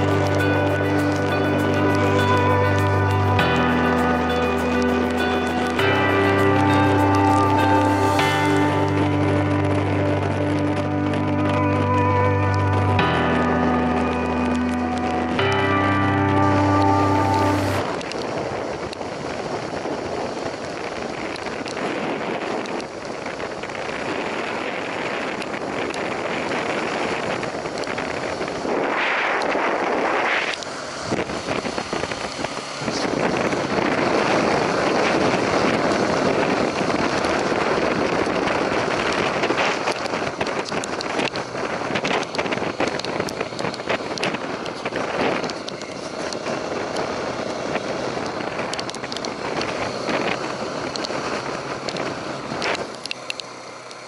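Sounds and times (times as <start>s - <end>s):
road and engine noise: 0.0s - 54.0s
wind rushing over microphone: 0.0s - 54.0s
small clicks and crackles: 17.8s - 33.0s, 33.8s - 54.0s.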